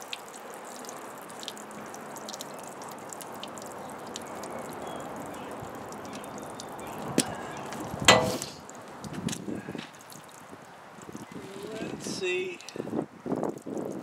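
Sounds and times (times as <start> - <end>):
water trickling into a bucket: 0.0 - 14.0
sharp tap: 8.1 - 8.5.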